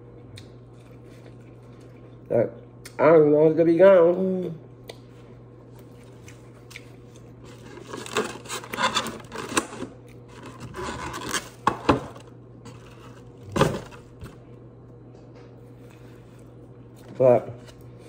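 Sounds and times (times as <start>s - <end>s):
chewing corn on the cob: 0.0s - 3.0s, 5.7s - 7.4s.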